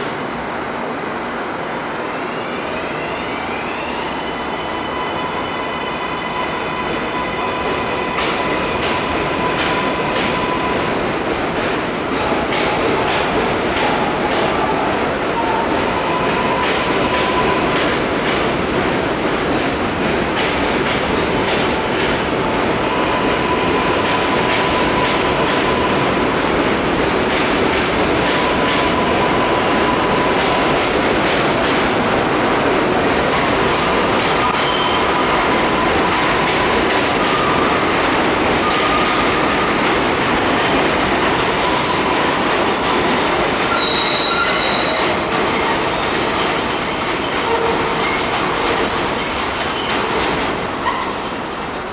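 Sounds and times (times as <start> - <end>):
train wheels rumbling on rail: 3.0 - 51.9
wheel squeal: 43.7 - 48.3.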